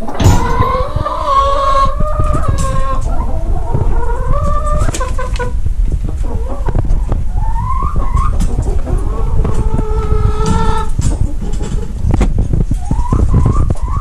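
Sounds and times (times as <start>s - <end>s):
chickens clucking: 0.0s - 14.0s
handling noise on microphone: 10.4s - 13.9s.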